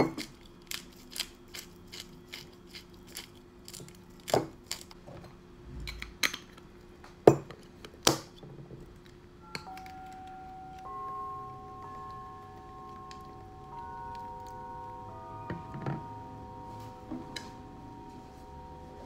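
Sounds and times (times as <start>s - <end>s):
chime-like music tones: 9.4s - 19.0s
glass and crockery knocking on table: 15.5s - 16.1s.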